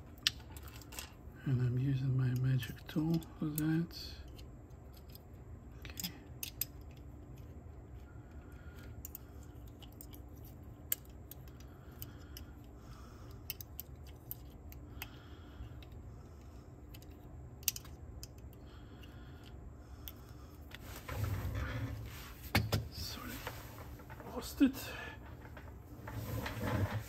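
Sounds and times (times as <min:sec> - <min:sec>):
low steady hum: 0:00.0 - 0:27.0
small clicks of tool on plastic: 0:10.9 - 0:16.0
rustling handling noise: 0:20.7 - 0:24.6.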